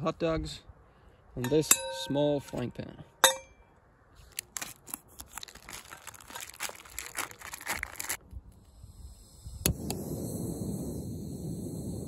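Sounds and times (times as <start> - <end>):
plastic packaging crinkling and tearing: 4.2 - 8.2.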